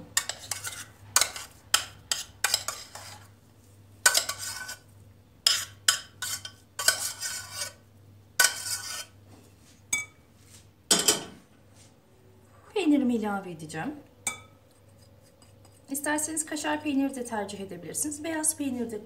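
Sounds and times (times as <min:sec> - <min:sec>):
metal spoon scraping saucepan: 0:00.0 - 0:03.3, 0:04.0 - 0:07.8, 0:08.4 - 0:09.2, 0:14.3 - 0:15.9.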